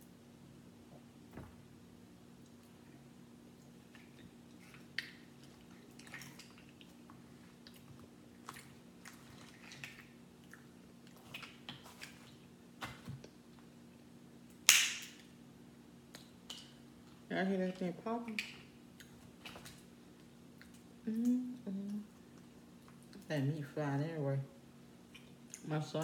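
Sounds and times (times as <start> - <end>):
faint steady hum: 0.0 - 26.0
crab shells cracking: 14.5 - 15.3.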